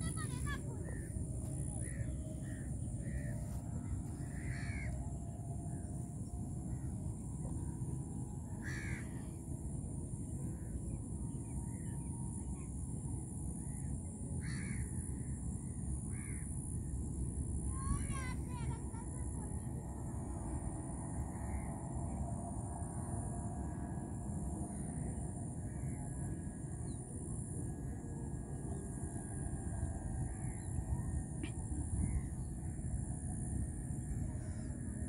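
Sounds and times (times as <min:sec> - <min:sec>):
crows cawing: 0:01.7 - 0:05.1, 0:08.6 - 0:09.3, 0:14.4 - 0:15.3, 0:16.1 - 0:16.5
wind rumble on microphone: 0:19.8 - 0:35.0.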